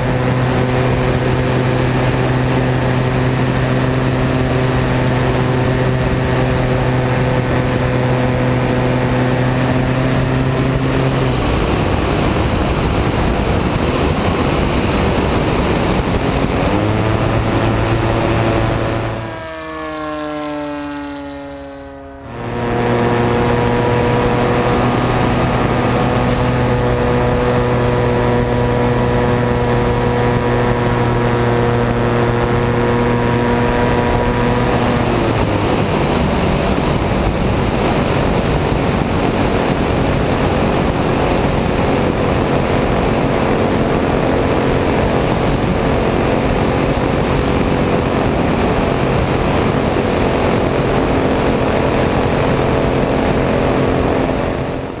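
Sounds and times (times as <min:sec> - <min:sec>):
rushing air: 0:00.0 - 0:21.1
model plane engine running: 0:00.0 - 0:55.0.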